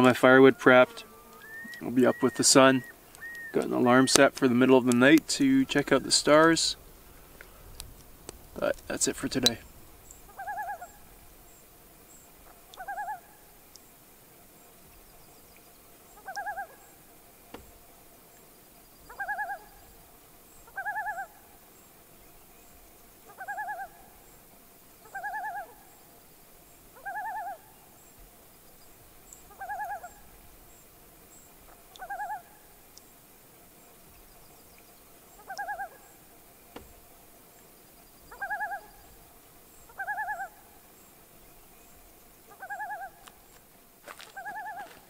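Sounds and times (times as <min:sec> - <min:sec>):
animal trilled call: 0:01.4 - 0:04.1, 0:10.3 - 0:11.1, 0:12.7 - 0:13.3, 0:29.5 - 0:30.2, 0:38.3 - 0:39.0, 0:39.9 - 0:40.6.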